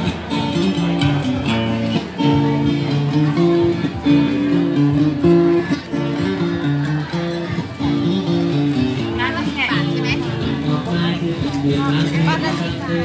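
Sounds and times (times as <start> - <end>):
acoustic guitar music: 0.0 - 13.0.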